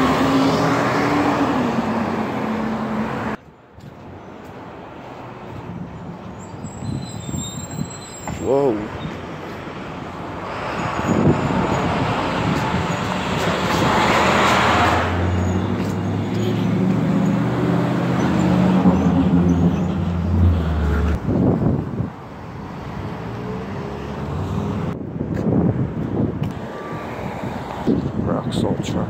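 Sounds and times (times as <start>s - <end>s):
vehicle passing: 0.0s - 3.4s, 9.3s - 25.0s.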